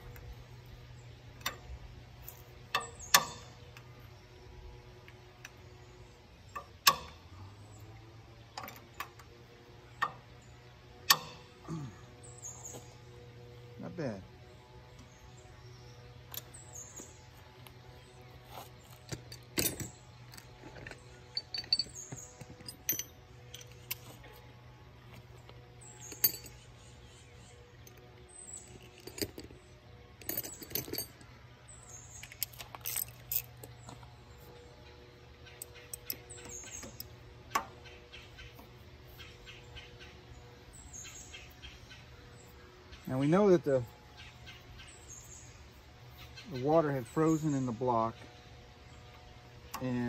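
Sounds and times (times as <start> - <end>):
metal hand tools clinking: 21.3 - 24.1, 26.0 - 26.6, 32.2 - 33.6.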